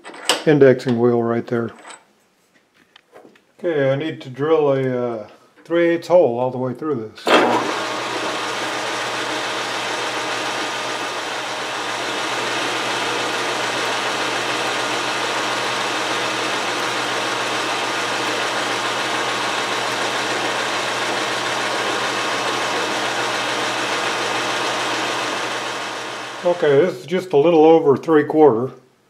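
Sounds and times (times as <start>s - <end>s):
metal lathe drilling: 7.3s - 26.6s.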